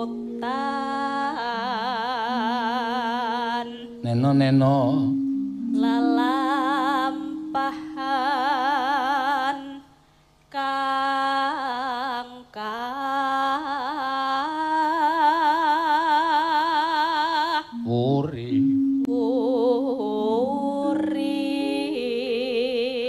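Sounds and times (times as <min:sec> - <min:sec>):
low sustained tone: 0:00.0 - 0:11.6, 0:17.6 - 0:23.0
person singing with vibrato: 0:00.0 - 0:23.0.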